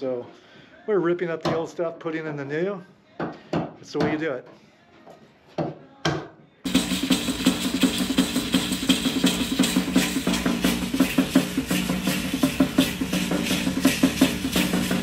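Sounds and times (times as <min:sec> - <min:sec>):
frame drum beaten with stick: 0:06.7 - 0:15.0.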